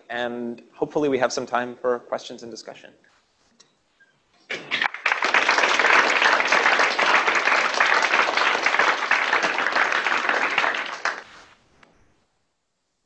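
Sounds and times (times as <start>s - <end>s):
audience applauding: 4.5s - 11.5s.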